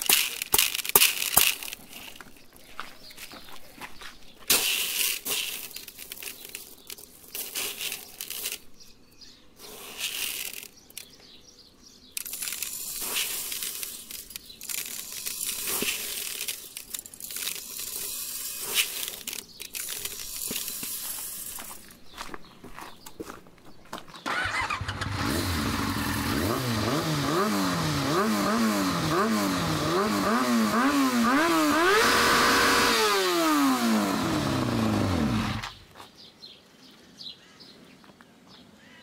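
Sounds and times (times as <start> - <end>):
pellets clicking against metal muffler: 0.0 - 2.3, 4.5 - 8.8, 9.6 - 11.2, 12.1 - 22.0
plastic pellets rattling in bucket: 0.0 - 2.4, 4.5 - 8.8, 9.7 - 11.2, 12.2 - 22.0.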